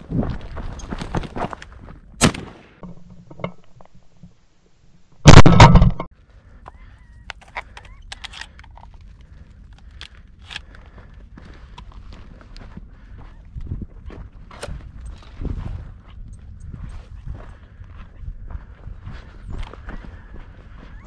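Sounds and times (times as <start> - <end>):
shotgun blast: 2.2 - 2.8.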